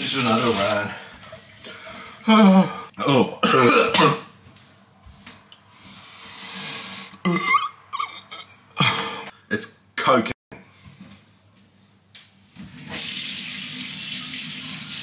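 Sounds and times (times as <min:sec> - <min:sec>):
man coughing and hacking: 0:03.4 - 0:04.3, 0:07.2 - 0:09.4.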